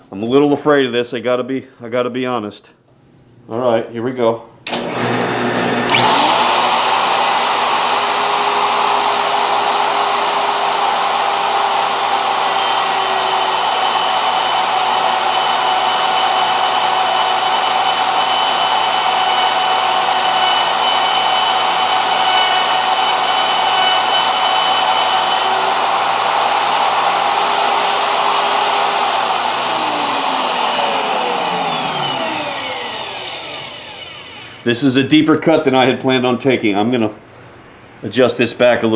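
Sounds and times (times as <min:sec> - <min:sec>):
electric router whining: 0:04.7 - 0:34.7.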